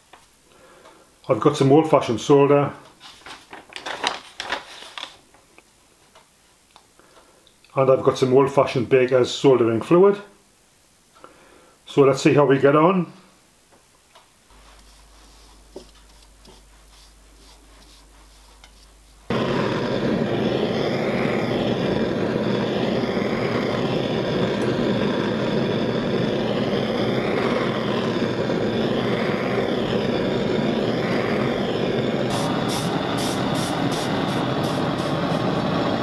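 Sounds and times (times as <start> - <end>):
gas torch flame rushing: 14.5 - 36.0.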